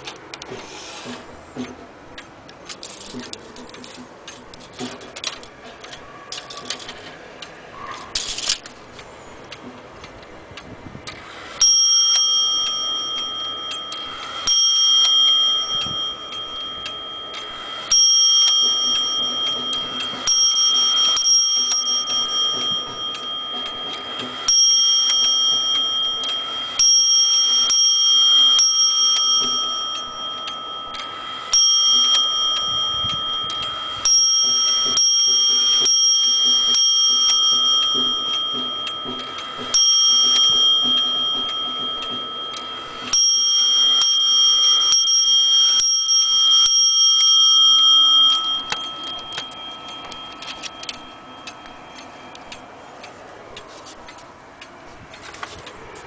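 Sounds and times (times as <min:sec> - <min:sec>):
wall clock striking bell: 0:11.3 - 0:55.0.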